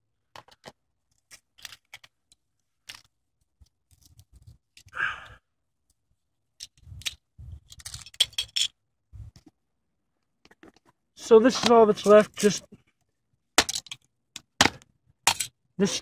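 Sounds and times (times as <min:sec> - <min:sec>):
plastic and metal pieces clicking: 0:00.3 - 0:04.9, 0:06.6 - 0:08.8.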